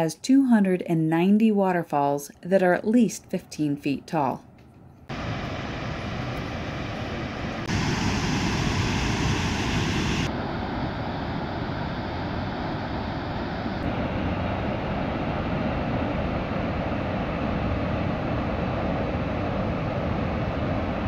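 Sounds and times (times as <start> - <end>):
waterfall rushing: 5.1 - 10.3.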